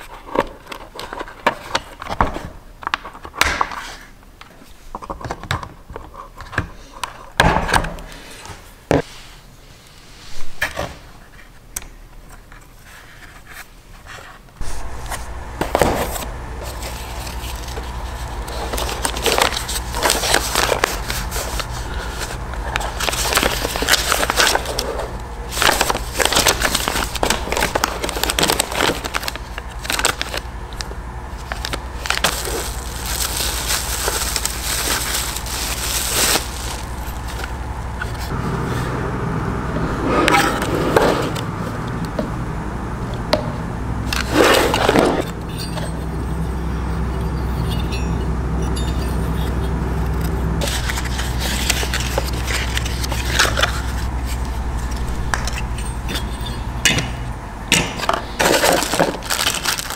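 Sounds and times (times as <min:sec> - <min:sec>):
steady low hum: 0:08.0 - 0:59.9
paper and cardboard rustling: 0:12.4 - 0:38.4, 0:50.6 - 0:56.6, 0:58.0 - 0:59.9.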